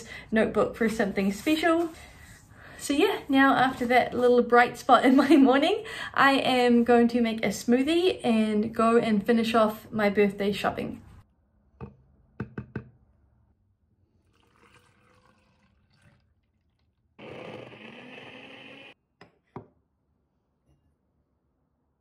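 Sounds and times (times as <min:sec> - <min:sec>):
blender running: 0:17.2 - 0:19.0.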